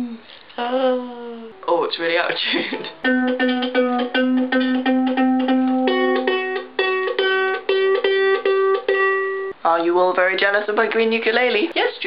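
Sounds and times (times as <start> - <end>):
ukulele string plucked: 2.6 - 9.5.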